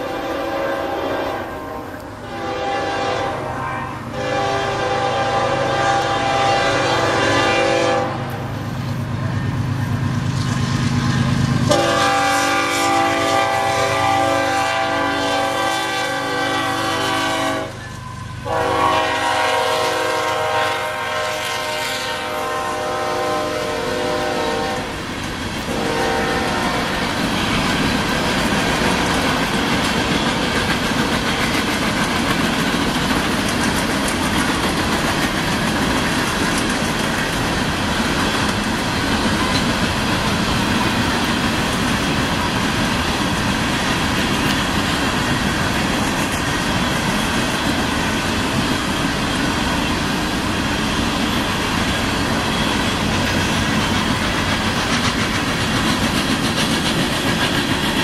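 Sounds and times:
locomotive air horn blowing chord: 0:00.0 - 0:08.6, 0:11.7 - 0:17.8, 0:18.4 - 0:25.0, 0:25.7 - 0:27.1
freight cars rumbling and clattering past: 0:08.2 - 0:12.0, 0:24.8 - 0:58.0.

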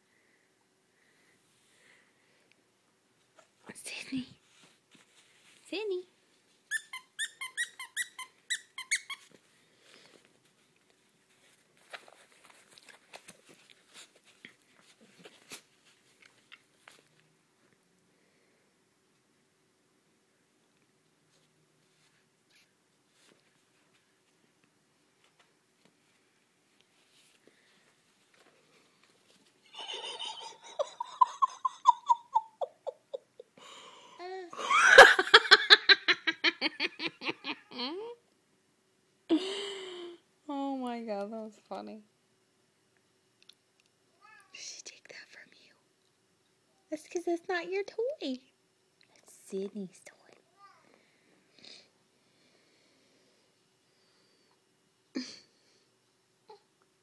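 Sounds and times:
rustling: 0:04.4 - 0:07.0, 0:08.8 - 0:17.8, 0:21.0 - 0:30.2
squeaky dog toy squeaking: 0:06.7 - 0:09.3
high-pitched laughter: 0:29.7 - 0:33.5, 0:34.6 - 0:38.2.

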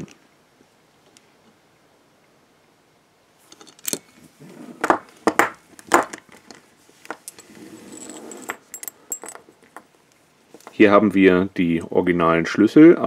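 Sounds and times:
soft rustle: 0:03.4 - 0:10.9
handcuffs clinking: 0:03.5 - 0:04.1, 0:07.0 - 0:09.9.

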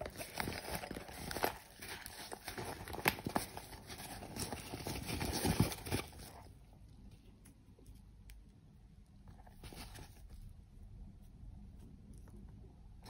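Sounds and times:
cloth pouch rustling: 0:00.0 - 0:06.5, 0:09.5 - 0:10.3.

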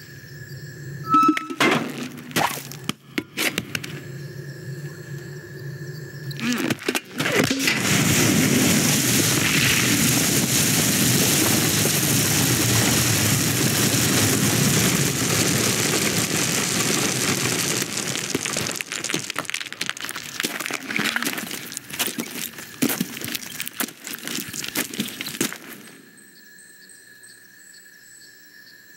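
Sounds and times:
grain pouring down a chute: 0:06.4 - 0:25.8
seeds rattling and clicking: 0:09.1 - 0:25.9.

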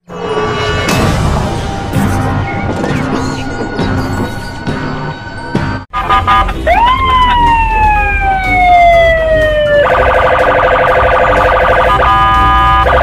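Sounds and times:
police siren: 0:06.0 - 0:13.0.

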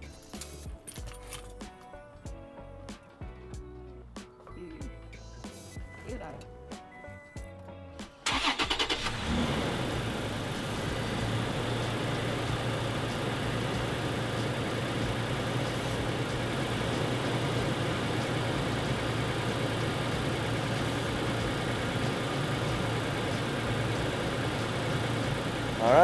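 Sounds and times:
truck engine idling: 0:08.3 - 0:26.0.

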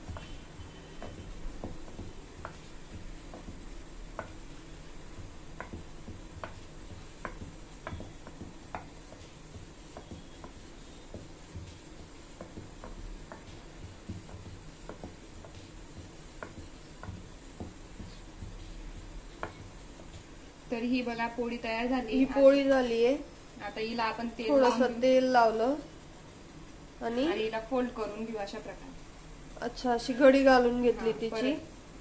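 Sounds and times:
rolling pin knocking on board: 0:00.0 - 0:04.6, 0:05.2 - 0:20.3
rolling pin rubbing dough: 0:00.0 - 0:22.7.

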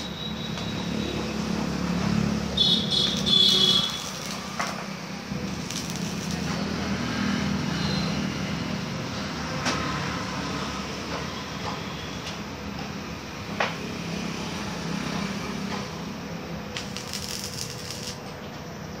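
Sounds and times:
welding arc crackling and hissing: 0:02.4 - 0:07.0, 0:16.7 - 0:18.4.

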